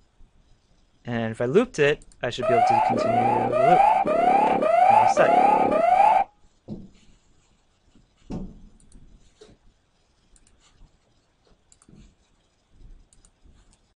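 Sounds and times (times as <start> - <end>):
computer mouse clicks: 11.7 - 11.9, 13.1 - 13.9.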